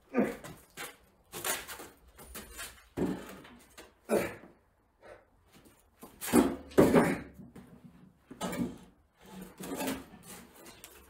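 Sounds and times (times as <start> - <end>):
objects knocking and clunking: 0.4 - 4.1, 6.0 - 11.0.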